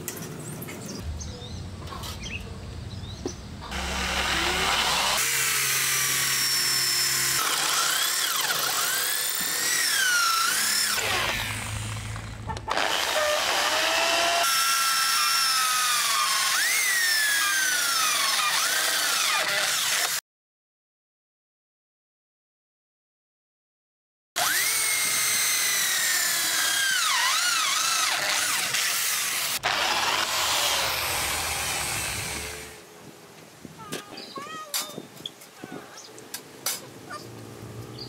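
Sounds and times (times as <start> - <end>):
electric drill boring through steel: 3.7 - 20.2, 24.4 - 32.8.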